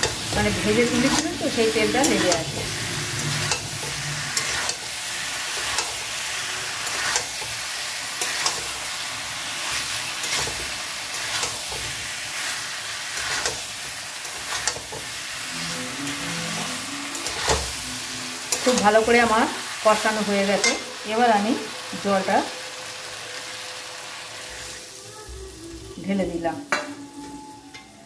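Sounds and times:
spatula scraping wok: 0:00.0 - 0:22.2
vegetables sizzling in oil: 0:00.0 - 0:28.0.

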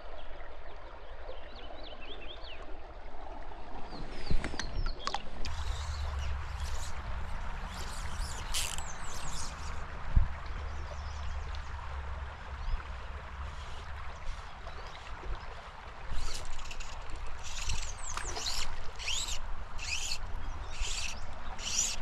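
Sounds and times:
creek water running over gravel: 0:00.0 - 0:22.0
wind rumble on microphone: 0:03.6 - 0:16.4.

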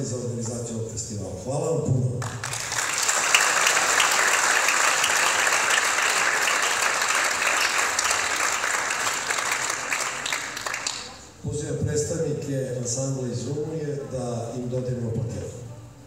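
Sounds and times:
crowd applauding: 0:02.2 - 0:11.3.

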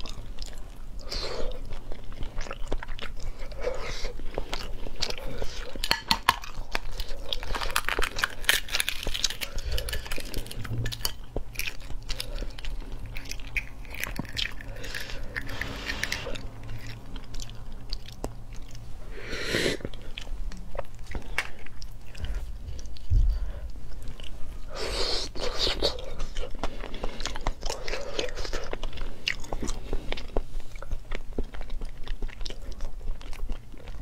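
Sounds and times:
eggshell cracking and crackling: 0:05.7 - 0:12.3.

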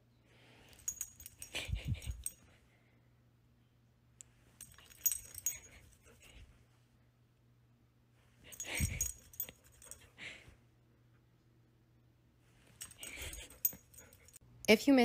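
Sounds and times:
metal dog tags jingling: 0:00.7 - 0:02.4, 0:04.6 - 0:06.2, 0:08.5 - 0:10.1, 0:12.8 - 0:14.4.

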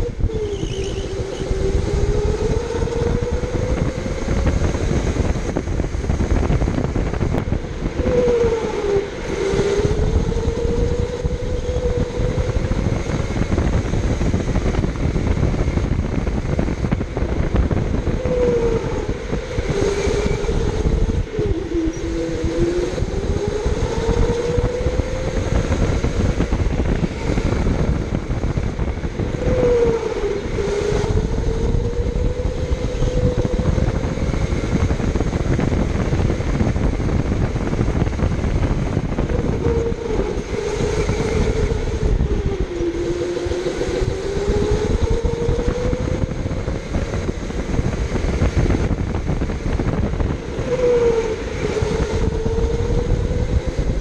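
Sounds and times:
electric go-kart motor whining: 0:00.0 - 0:54.0
low rumble: 0:00.0 - 0:54.0.

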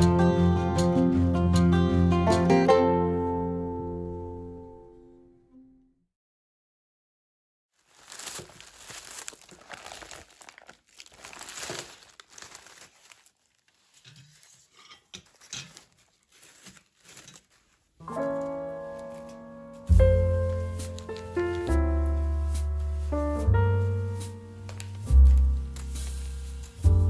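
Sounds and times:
piano music: 0:00.0 - 0:05.7, 0:18.0 - 0:27.0
newspaper and corn husks crinkling: 0:07.8 - 0:27.0.

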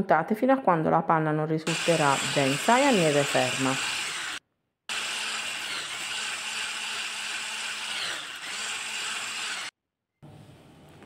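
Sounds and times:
electric hand mixer whipping cream: 0:01.7 - 0:09.7.

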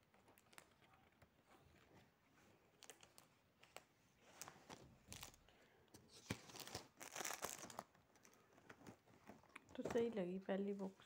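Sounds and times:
plastic wrapping crinkling: 0:02.7 - 0:05.5, 0:06.1 - 0:10.2.

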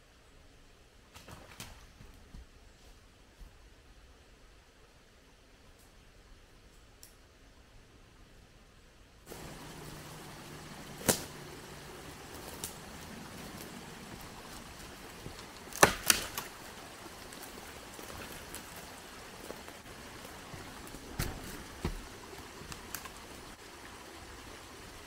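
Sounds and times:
twigs snapping: 0:09.3 - 0:19.8, 0:20.8 - 0:23.2
footsteps through dry twigs: 0:09.3 - 0:23.3
small stream trickling: 0:09.3 - 0:25.0.

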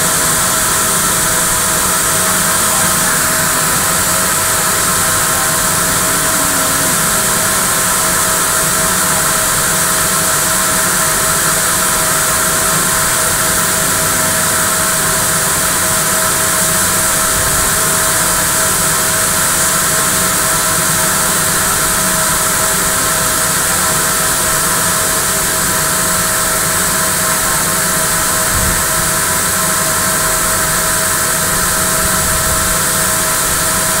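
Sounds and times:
constant machine hum: 0:00.0 - 0:34.0
knitting machines hissing: 0:00.1 - 0:16.9.

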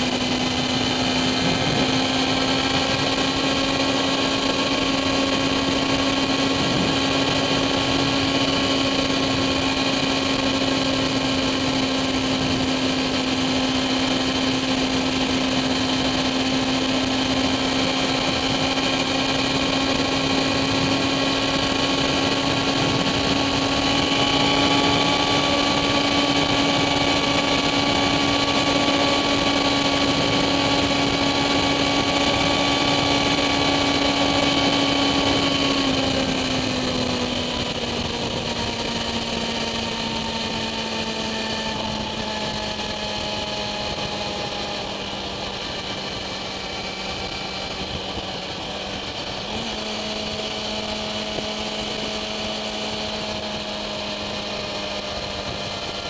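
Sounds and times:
motorcycle engine at high revs: 0:00.0 - 0:56.0.

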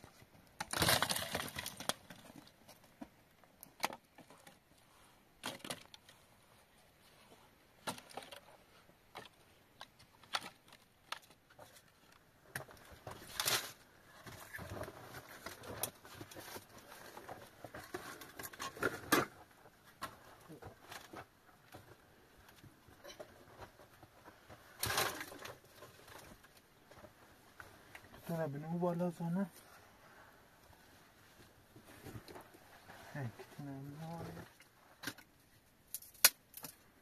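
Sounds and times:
dry twigs snapping and crackling: 0:00.5 - 0:02.5, 0:35.9 - 0:36.8.

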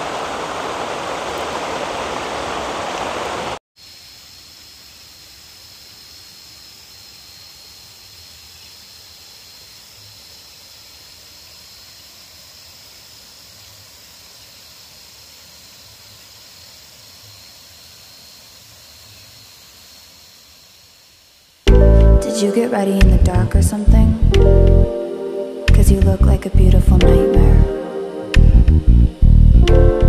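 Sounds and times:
outdoor ambient hiss: 0:00.0 - 0:26.6, 0:27.6 - 0:29.6
night insects trilling: 0:02.0 - 0:23.0.

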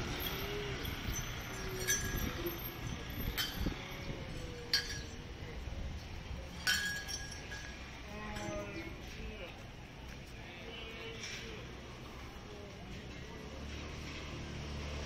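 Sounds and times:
sharp metallic clinks: 0:00.0 - 0:05.4, 0:06.4 - 0:08.9
low street background noise: 0:00.0 - 0:15.0.

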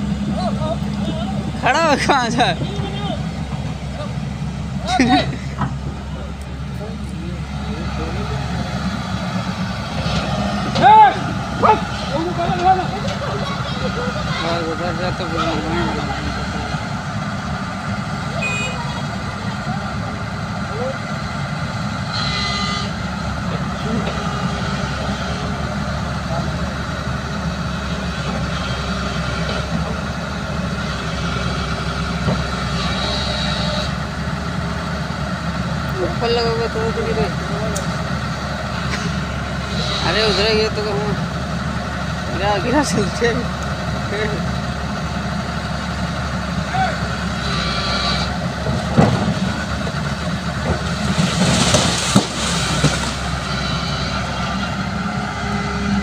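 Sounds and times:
excavator diesel engine running: 0:00.0 - 0:56.0
branches rustling: 0:48.5 - 0:54.2
tree trunk cracking: 0:50.8 - 0:53.3.

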